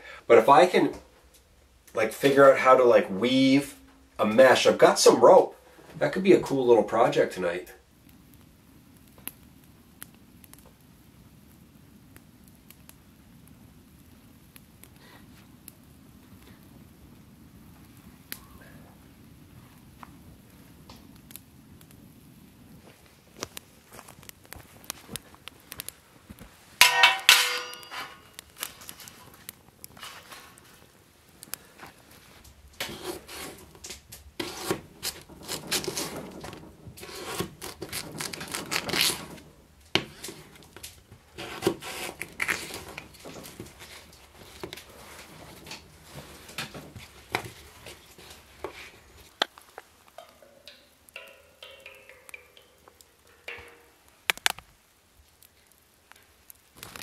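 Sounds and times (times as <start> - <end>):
loud ringing clang: 26.8 - 28.4, 50.4 - 54.1.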